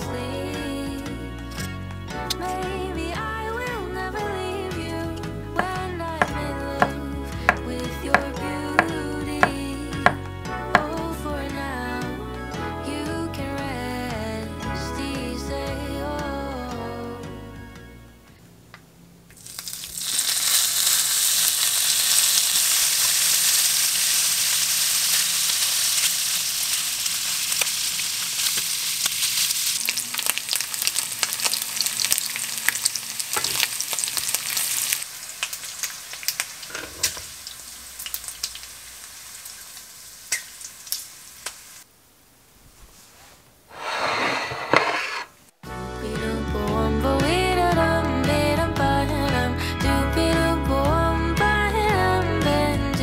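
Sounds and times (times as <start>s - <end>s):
meat sizzling in a frying pan: 19.4s - 41.8s.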